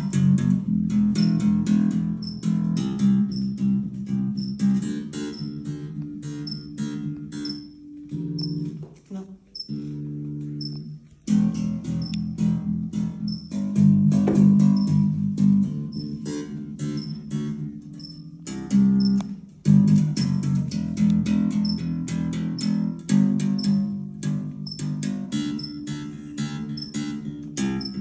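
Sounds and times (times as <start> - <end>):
electric bass plucked notes: 0.0 - 28.0
high ticking metronome: 0.0 - 28.0.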